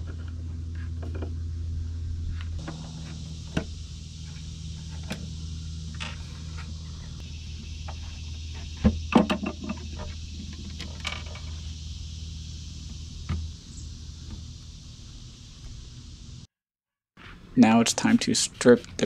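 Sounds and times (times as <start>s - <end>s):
steady low hum: 0.0s - 16.5s.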